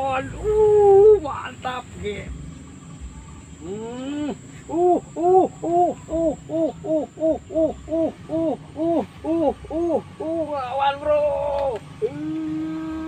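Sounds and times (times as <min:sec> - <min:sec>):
rising pitched hooting call: 0:03.6 - 0:11.3.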